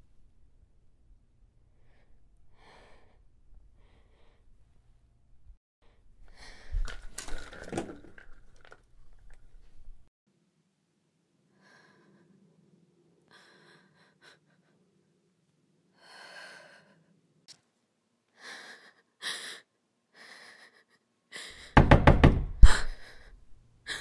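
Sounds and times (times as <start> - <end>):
loud knocks on door: 21.7 - 22.7
woman gasping: 22.6 - 24.0.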